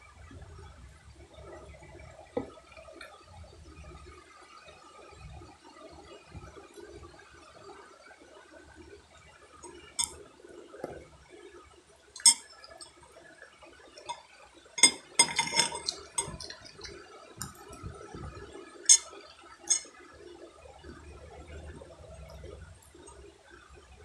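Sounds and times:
cutlery and dishes clinking: 12.2s - 12.6s, 14.8s - 17.6s, 18.9s - 19.1s, 19.7s - 19.9s.

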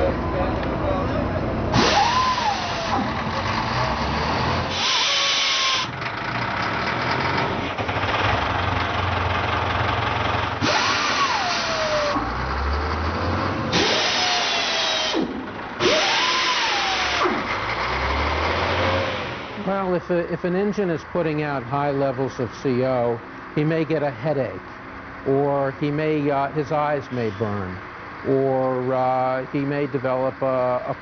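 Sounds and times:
diesel machinery engines: 0.0s - 31.0s
rising and falling whine: 1.7s - 5.9s, 10.6s - 17.7s.

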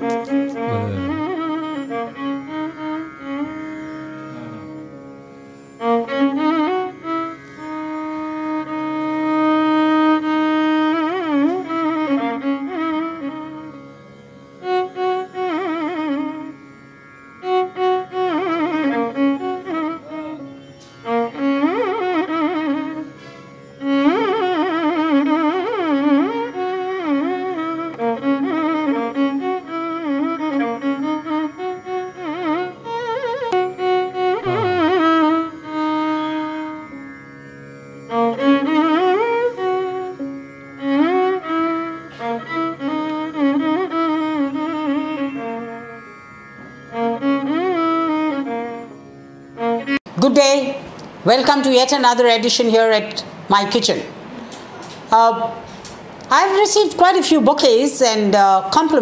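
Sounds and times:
low drone: 3.4s - 5.4s, 34.4s - 35.5s.

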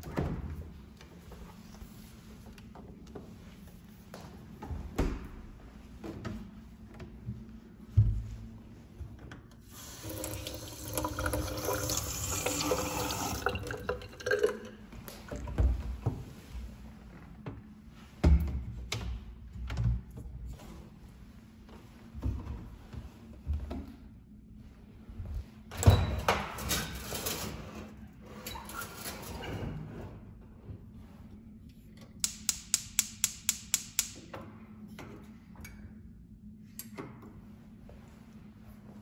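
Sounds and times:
faucet running into metal sink: 9.7s - 14.7s.

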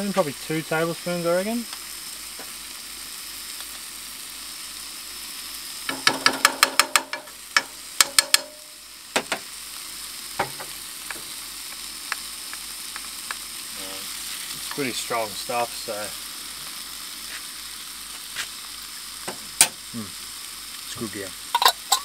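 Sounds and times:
vegetables sizzling in a frying pan: 0.0s - 22.0s
metal spoon knocking: 8.0s - 8.6s.

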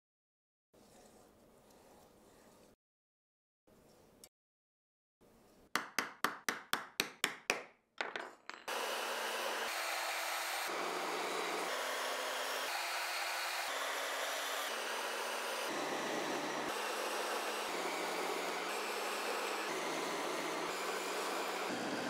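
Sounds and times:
drill press rushing noise: 8.7s - 22.0s.

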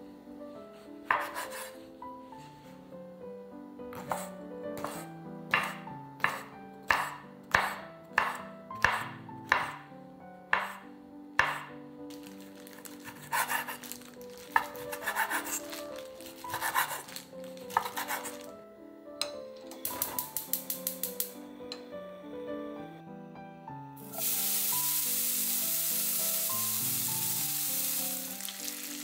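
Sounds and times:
soft background music: 0.0s - 29.0s
knife chopping on a cutting board: 1.0s - 1.8s, 3.9s - 9.9s, 10.5s - 11.8s, 12.7s - 18.5s.

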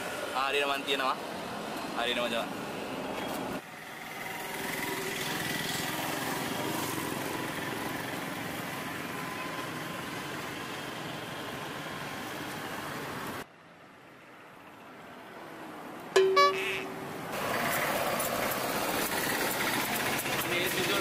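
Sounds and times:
street traffic: 0.0s - 21.0s
small engine running: 17.4s - 21.0s.

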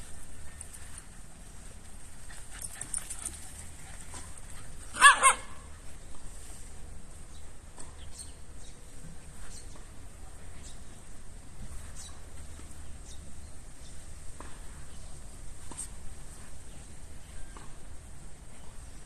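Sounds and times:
dog barking: 5.0s - 5.6s.

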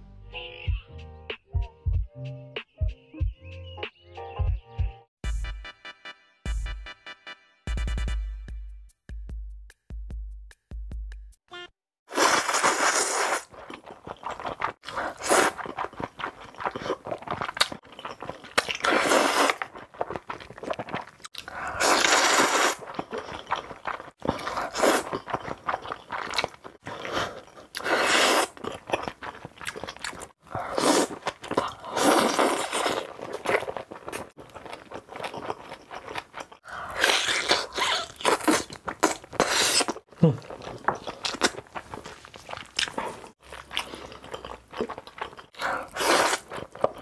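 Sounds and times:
loud noodle slurping: 12.1s - 17.4s, 18.7s - 28.6s, 30.1s - 34.2s, 36.6s - 40.6s, 45.6s - 46.7s
crunchy wet chewing: 12.2s - 47.0s.

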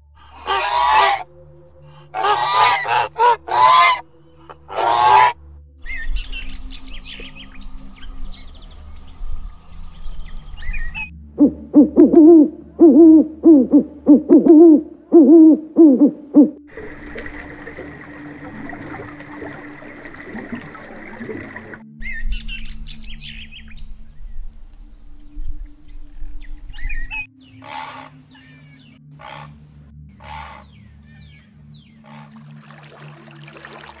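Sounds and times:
harsh animal calls: 0.2s - 1.2s, 1.9s - 5.4s, 29.2s - 29.6s, 30.2s - 30.7s.

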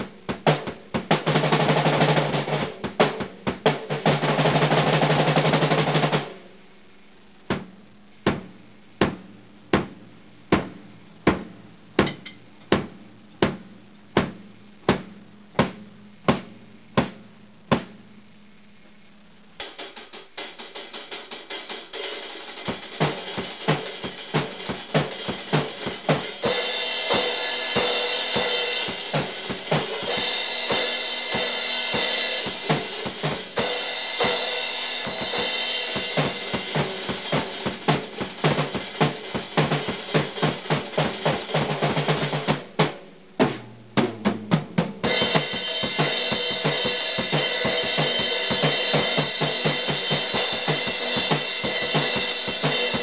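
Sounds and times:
drum kit beat with cymbals: 0.0s - 18.7s, 19.4s - 53.0s
single drum strikes: 42.8s - 46.5s.

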